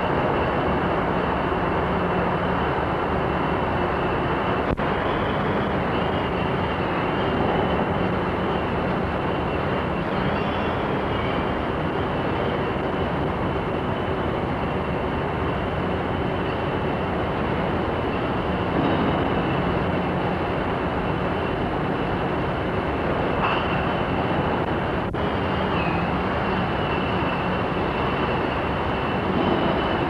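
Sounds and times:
faint high whine: 0:00.0 - 0:30.0.

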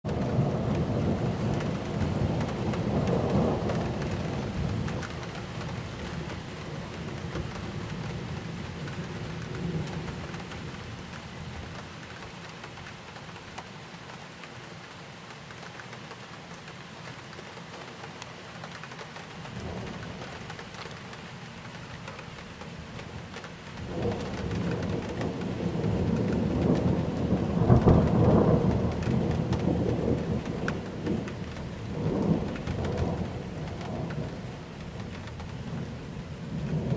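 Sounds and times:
rolling thunder: 0:00.1 - 0:10.8, 0:19.5 - 0:20.5, 0:23.7 - 0:36.9
rain hiss: 0:00.1 - 0:36.9.

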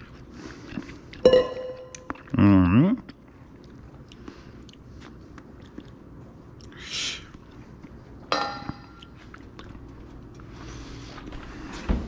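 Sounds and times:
mouth eating sounds: 0:00.0 - 0:08.0.

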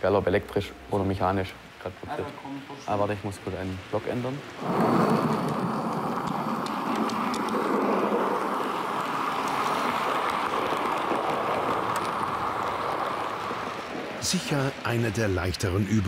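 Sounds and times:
model train rolling on rails: 0:04.5 - 0:16.0
faint clicks: 0:04.6 - 0:14.1.

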